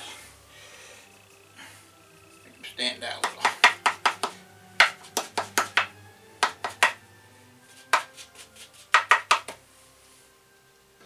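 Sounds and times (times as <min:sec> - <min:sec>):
paintbrush tapping canvas: 0:03.1 - 0:07.0, 0:07.7 - 0:09.6.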